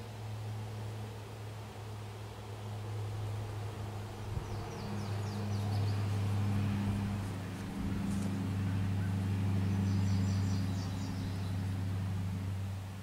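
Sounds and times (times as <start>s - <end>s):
engine running steadily: 0.0s - 13.0s
birds chirping faintly: 3.9s - 12.6s.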